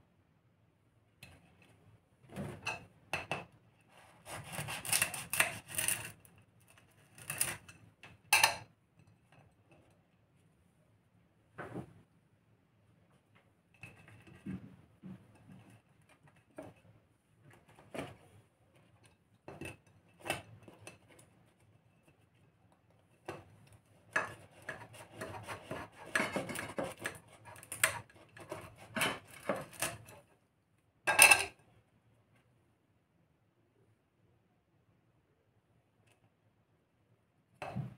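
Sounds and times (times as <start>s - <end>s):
knife scraping a ceramic plate: 2.7s - 7.8s, 13.8s - 14.5s, 18.8s - 22.4s, 23.1s - 30.2s.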